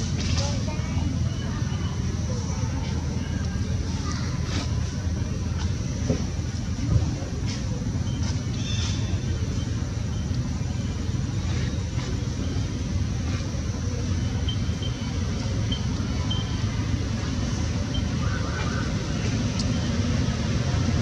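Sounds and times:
faint high chirps: 0:08.0 - 0:20.5.

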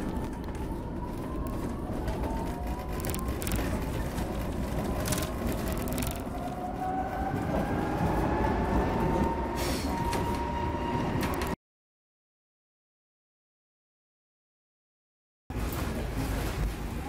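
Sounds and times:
train rattling: 0:00.0 - 0:11.6
train rumbling on track: 0:00.0 - 0:11.6, 0:15.5 - 0:17.0.

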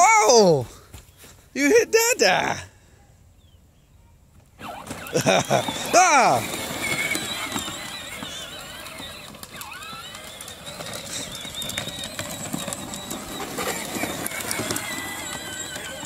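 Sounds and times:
wheels rolling and crackling: 0:04.3 - 0:16.0
electric motor and gear whine: 0:04.6 - 0:16.0.

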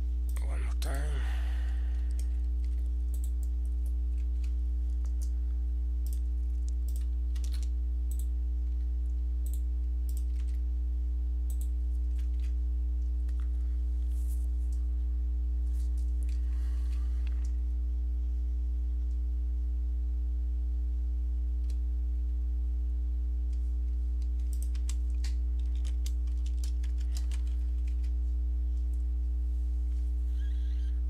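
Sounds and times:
loud steady low hum: 0:00.0 - 0:31.0
computer keyboard typing: 0:02.0 - 0:05.3, 0:06.0 - 0:08.3, 0:09.5 - 0:10.6, 0:24.2 - 0:28.1.

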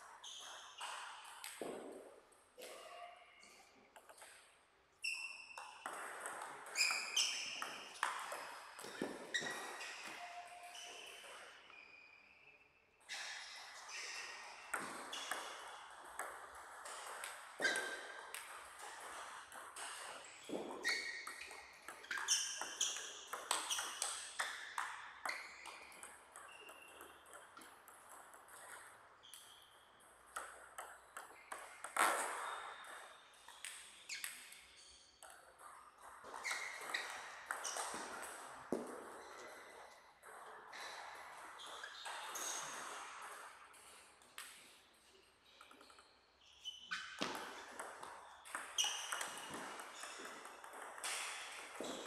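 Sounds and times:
ball bouncing on table: 0:05.6 - 0:11.4, 0:13.9 - 0:34.5, 0:35.2 - 0:44.6, 0:46.9 - 0:52.0.

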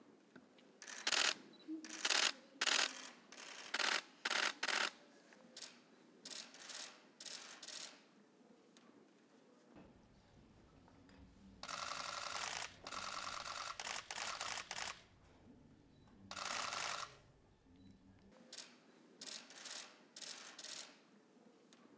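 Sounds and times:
camera shutter clicks: 0:00.8 - 0:05.0, 0:11.6 - 0:15.0, 0:16.3 - 0:17.1, 0:18.6 - 0:21.0.

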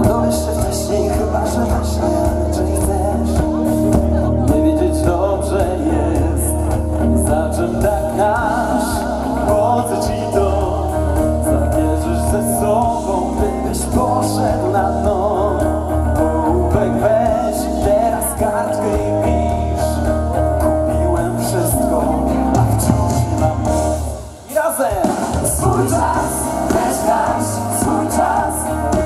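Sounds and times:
live pop band playing: 0:00.0 - 0:29.0
voices singing: 0:24.5 - 0:29.0.

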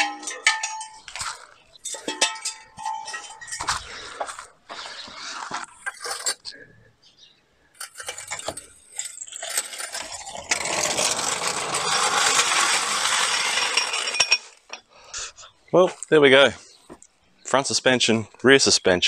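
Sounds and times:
trolley jack clinking and rattling: 0:00.0 - 0:04.2, 0:07.8 - 0:14.8.

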